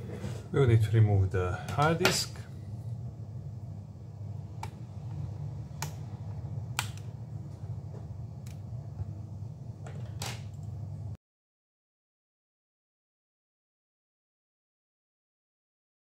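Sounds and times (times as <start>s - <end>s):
steady low hum: 0.0s - 11.2s.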